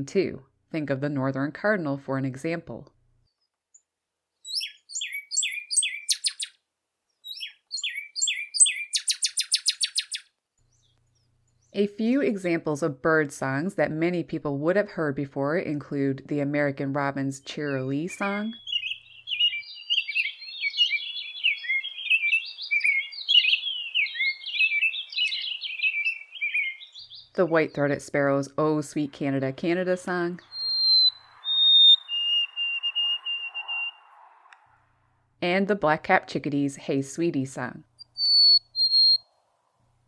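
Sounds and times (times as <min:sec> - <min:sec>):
bird singing whistles: 0:04.5 - 0:06.5, 0:07.2 - 0:10.9, 0:18.5 - 0:27.3, 0:30.5 - 0:34.2, 0:38.0 - 0:39.3.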